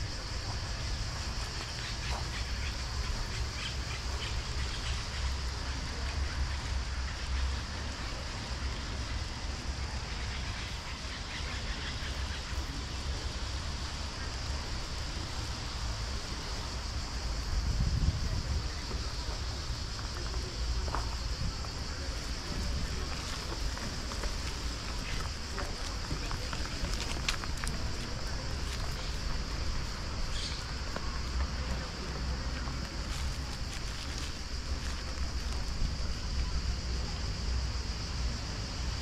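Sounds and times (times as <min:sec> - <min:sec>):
steady hiss: 0:00.0 - 0:39.0
wind rumble on microphone: 0:15.9 - 0:32.0
faint chirps: 0:18.4 - 0:34.2.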